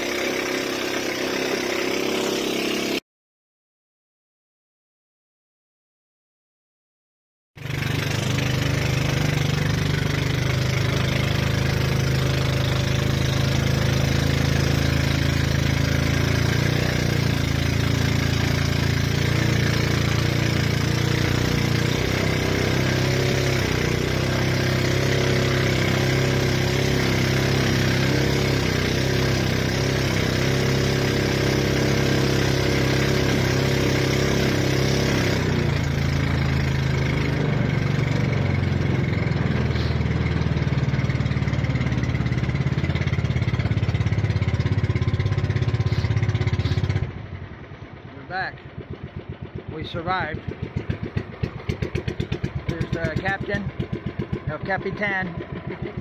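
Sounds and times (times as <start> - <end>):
boat engine running: 0.0 - 3.0, 7.6 - 56.0
water rushing along hull: 48.7 - 54.5.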